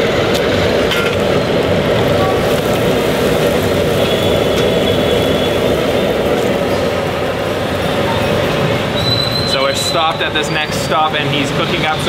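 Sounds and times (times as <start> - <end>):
bread deep-frying in hot oil: 1.6 - 8.0.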